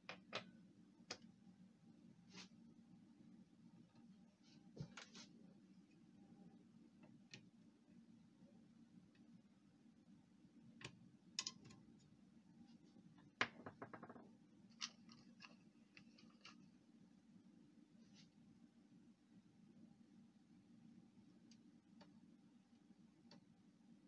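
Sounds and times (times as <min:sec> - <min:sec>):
faint low hum: 0:00.0 - 0:13.4, 0:14.2 - 0:24.0.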